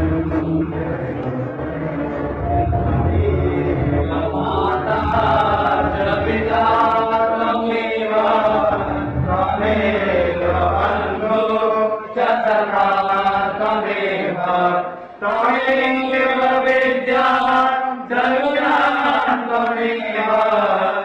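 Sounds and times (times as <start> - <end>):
low steady drone: 0.0 - 6.7
person chanting: 0.0 - 21.0.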